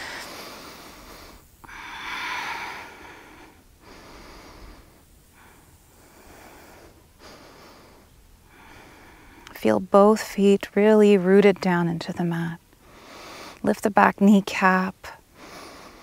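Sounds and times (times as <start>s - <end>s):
woman breathing slowly: 0.0s - 9.8s, 12.8s - 13.6s, 15.2s - 16.0s.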